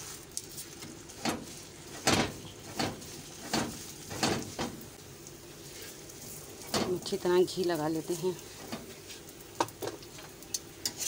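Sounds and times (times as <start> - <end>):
spatula scraping on griddle: 5.6 - 6.9, 8.5 - 9.3, 10.8 - 11.0.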